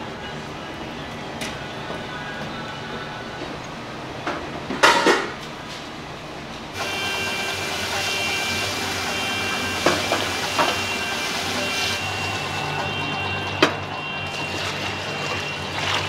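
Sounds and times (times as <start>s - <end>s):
metal dishes clattering: 4.8s - 5.4s
machine hum: 6.0s - 16.0s.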